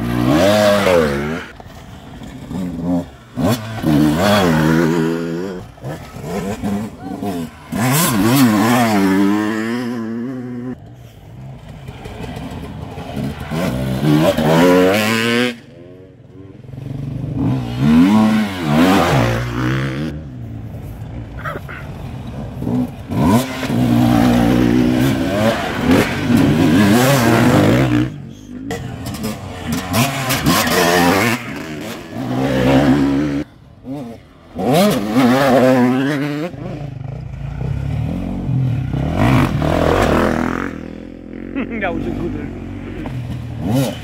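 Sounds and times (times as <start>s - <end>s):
dirt bikes revving: 0.0s - 44.0s.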